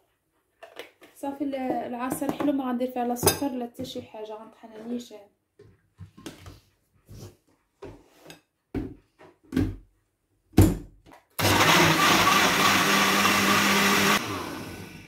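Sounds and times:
blender motor running: 11.4s - 15.0s.

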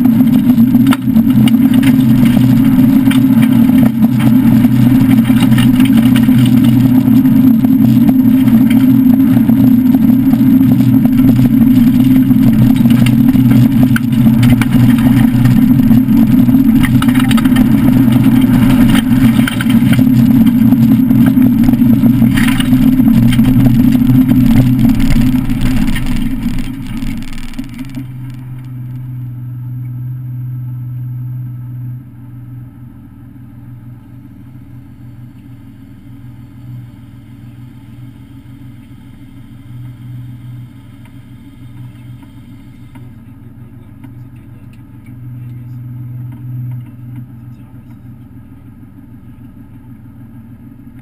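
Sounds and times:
car engine heard from cabin: 0.0s - 51.0s.

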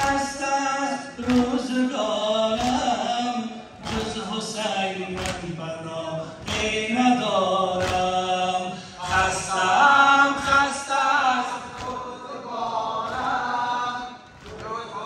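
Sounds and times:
mourners chanting a lament: 0.0s - 15.0s
chest-beating slaps: 1.2s - 1.6s, 2.6s - 2.9s, 3.8s - 4.2s, 5.1s - 5.5s, 7.7s - 8.3s, 11.5s - 12.2s, 13.0s - 13.6s, 14.3s - 14.8s.

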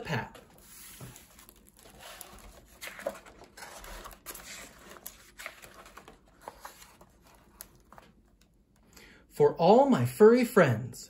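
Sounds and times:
book pages turning: 0.2s - 8.5s.

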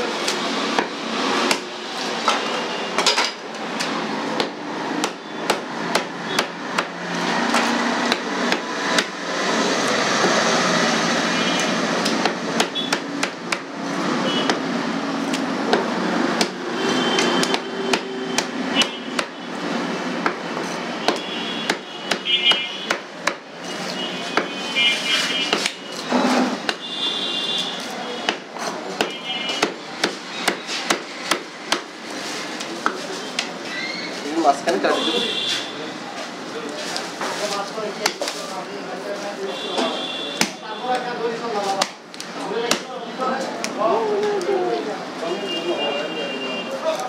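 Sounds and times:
steady background noise: 0.0s - 47.0s
knife chopping on wood block: 3.8s - 9.2s, 12.0s - 13.7s, 15.3s - 16.6s, 17.2s - 19.4s, 20.2s - 23.5s, 24.3s - 24.6s, 25.4s - 25.8s, 28.2s - 31.9s.

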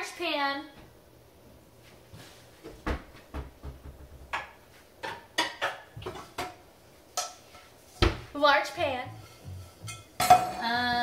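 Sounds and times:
pots and pans clanking: 4.3s - 11.0s.

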